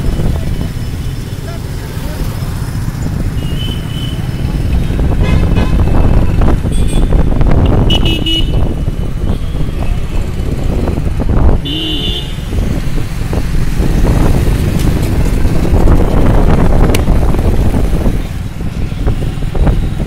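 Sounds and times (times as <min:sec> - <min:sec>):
road traffic rumble: 0:00.0 - 0:20.0
car horn toots: 0:05.2 - 0:08.7, 0:11.6 - 0:12.4.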